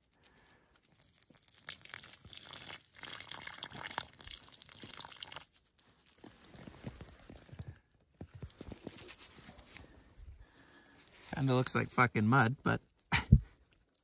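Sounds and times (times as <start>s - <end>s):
diesel pouring and dripping onto snow: 0.0s - 14.0s
crackly handling noise: 5.8s - 10.2s.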